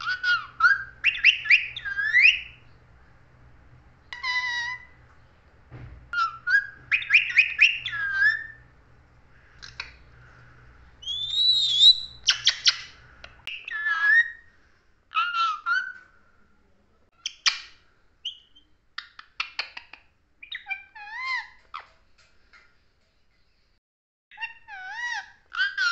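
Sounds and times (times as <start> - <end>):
parakeet whistled calls and chirps: 0.0 - 2.8, 4.1 - 5.0, 6.1 - 8.7, 11.0 - 14.5, 15.1 - 16.0, 17.2 - 21.9, 24.3 - 25.9.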